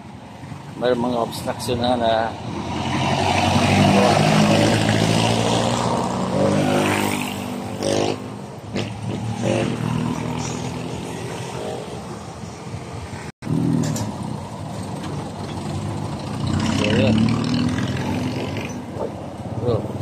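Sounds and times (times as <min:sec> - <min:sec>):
motorcycle engine revving: 0:02.5 - 0:11.9, 0:13.4 - 0:14.5, 0:15.6 - 0:19.0.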